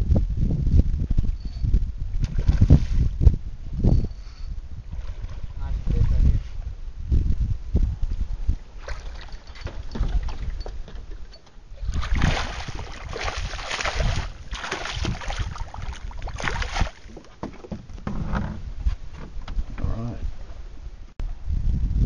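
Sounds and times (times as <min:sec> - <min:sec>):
fish splashing at water surface: 0:12.0 - 0:17.1.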